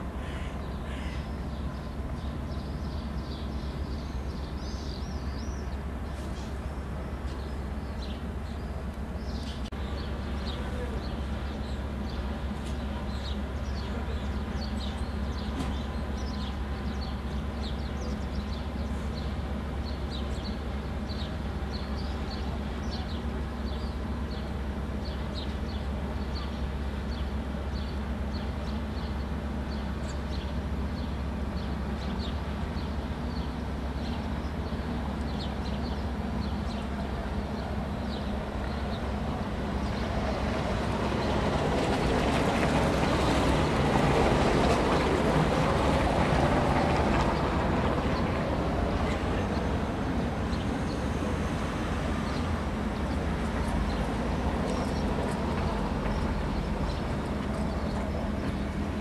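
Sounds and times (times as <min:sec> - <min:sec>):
small birds chirping: 0:00.2 - 0:40.5, 0:52.1 - 0:59.0.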